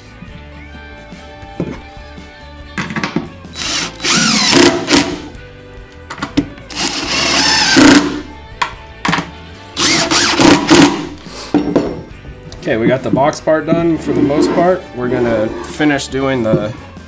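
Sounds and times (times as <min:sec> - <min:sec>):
cordless driver whining: 0:03.6 - 0:05.3, 0:06.7 - 0:08.2, 0:09.8 - 0:11.0
screws driving into wood: 0:03.6 - 0:05.3, 0:06.7 - 0:08.2, 0:09.8 - 0:11.2.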